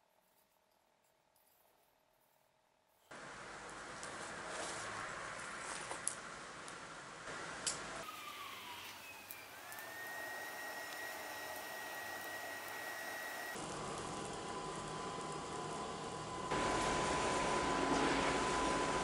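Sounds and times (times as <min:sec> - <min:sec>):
furnace burning with rushing noise: 0:03.1 - 0:19.0
sharp crackles: 0:07.6 - 0:13.6.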